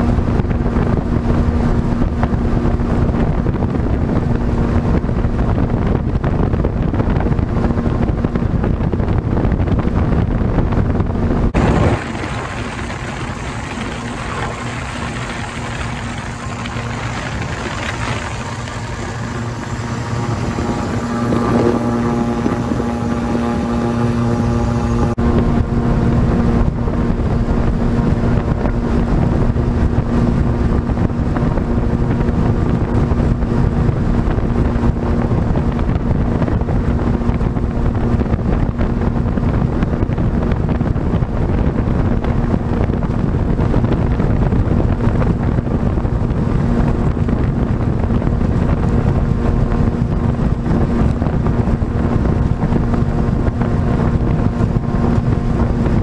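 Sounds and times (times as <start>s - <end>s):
rushing wind: 0.0s - 56.0s
water noise against hull: 0.0s - 56.0s
aircraft engine drone: 11.6s - 25.2s.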